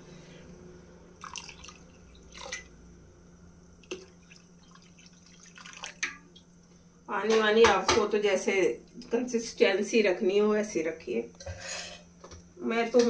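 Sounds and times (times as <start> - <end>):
water plopping into batter: 3.8 - 6.5.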